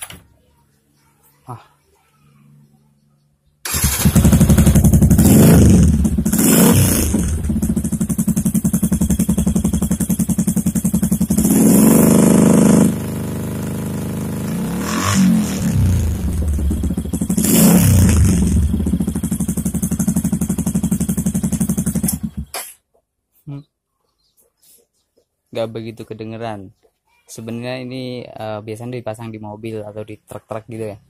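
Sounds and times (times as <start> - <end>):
motorcycle engine idling and revving: 3.7 - 22.5.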